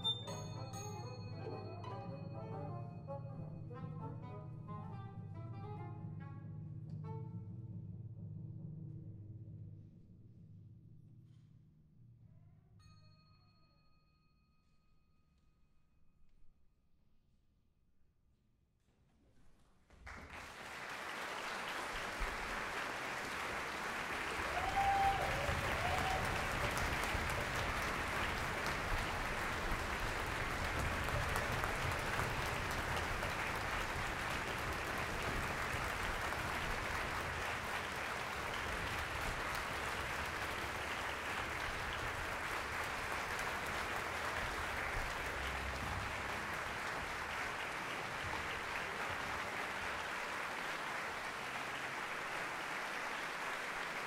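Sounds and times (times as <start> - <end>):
audience applauding: 20.0 - 54.0.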